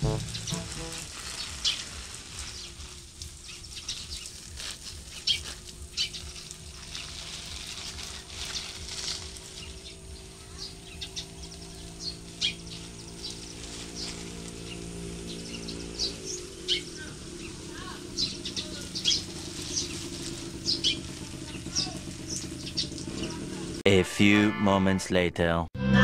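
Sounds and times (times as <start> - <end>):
water splashing onto plants: 0.0 - 23.8.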